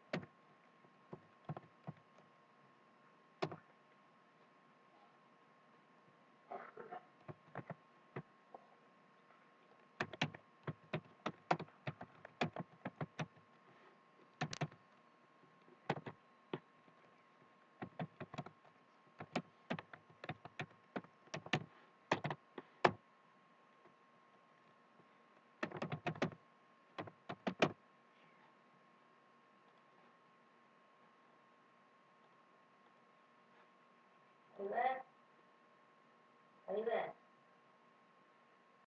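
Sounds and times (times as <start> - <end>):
typing on keyboard: 10.0 - 13.4, 14.4 - 14.8, 15.9 - 16.2, 17.8 - 18.6, 19.2 - 23.0, 25.6 - 26.4, 27.0 - 27.8.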